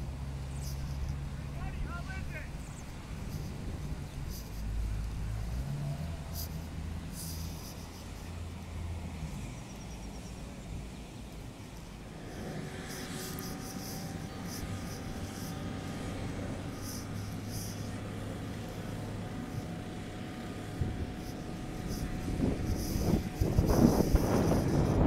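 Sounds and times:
boat engines rumbling: 0.0 - 25.0
high steady whine: 11.6 - 25.0.

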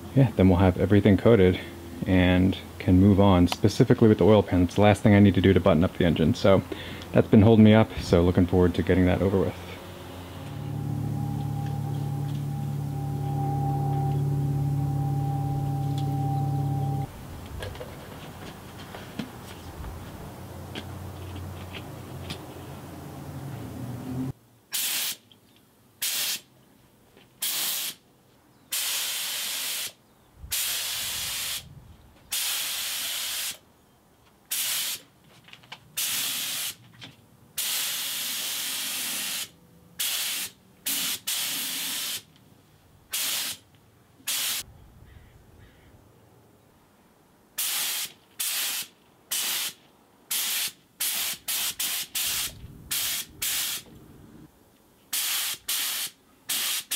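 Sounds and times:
air spray gun bursts: 24.7 - 25.2, 26.0 - 26.5, 27.4 - 28.0, 28.7 - 31.6, 32.3 - 33.6, 34.5 - 35.0, 36.0 - 36.8, 37.6 - 42.3, 43.1 - 43.6, 44.3 - 44.6, 47.6 - 53.9, 55.1 - 56.9.

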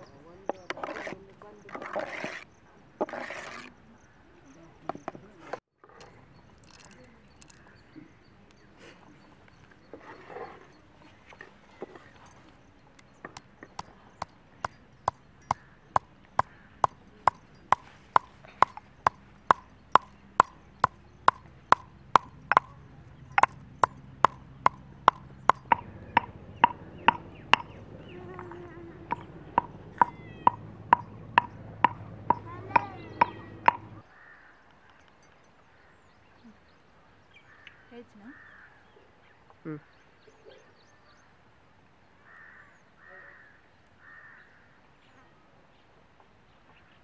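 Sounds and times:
pestle pounding in stone mortar: 13.3 - 34.0.

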